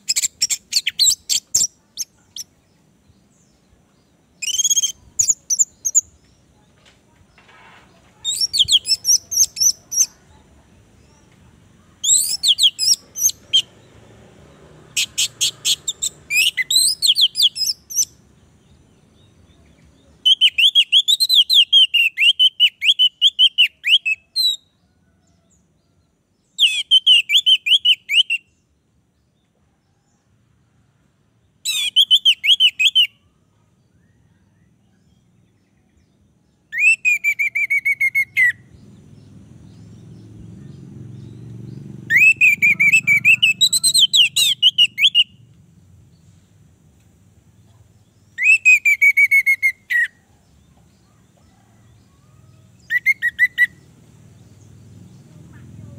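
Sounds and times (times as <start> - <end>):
thrush singing whistled phrases: 4.4 - 5.8, 20.2 - 24.6, 26.6 - 28.5, 31.7 - 33.2, 36.7 - 38.6, 42.1 - 45.4, 48.4 - 50.2, 52.9 - 53.8.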